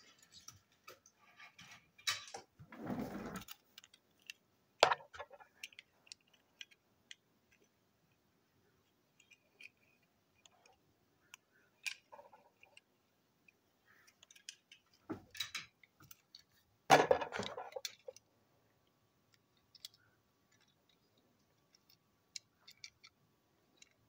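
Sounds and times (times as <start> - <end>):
toy car clicks and taps: 3.5 - 7.7, 9.2 - 16.5, 19.3 - 21.0, 21.6 - 24.0.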